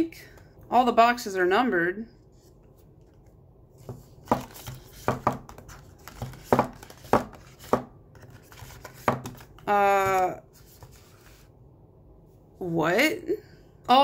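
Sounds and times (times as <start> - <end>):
cardboard boxes tapping and sliding: 3.8 - 9.4.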